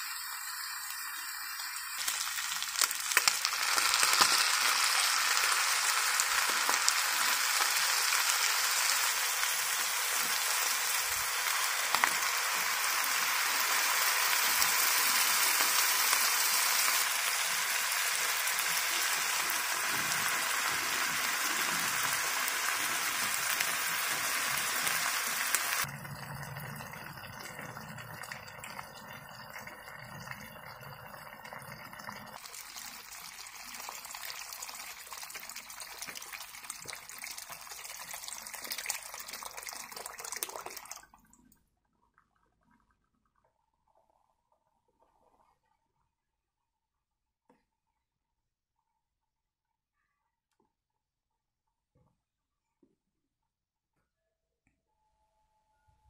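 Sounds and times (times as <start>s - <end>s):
meat frying sizzle: 0.0s - 41.0s.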